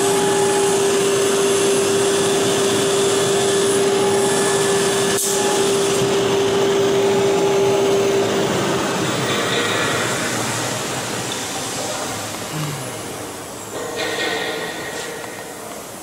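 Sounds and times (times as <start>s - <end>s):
wood router running: 0.0s - 9.3s.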